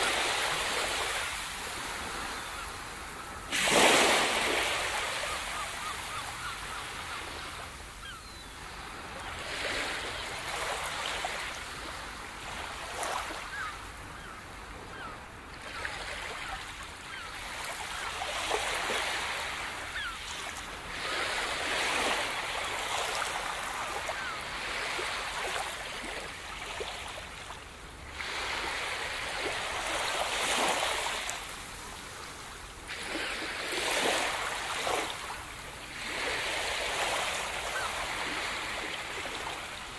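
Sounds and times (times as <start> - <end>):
ocean surf washing onto shore: 0.0 - 5.7.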